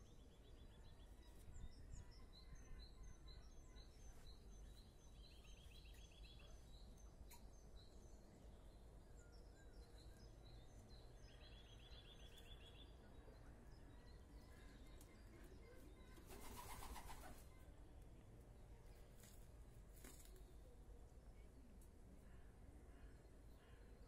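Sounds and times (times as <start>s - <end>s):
small birds chirping and trilling: 0.0s - 17.7s
low steady background hum: 0.0s - 24.0s.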